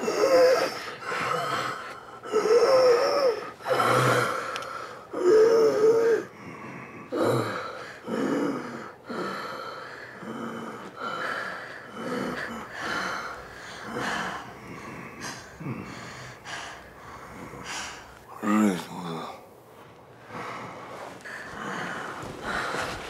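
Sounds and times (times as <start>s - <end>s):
faint moan: 0.0s - 19.5s
man gasping breaths: 6.3s - 23.0s.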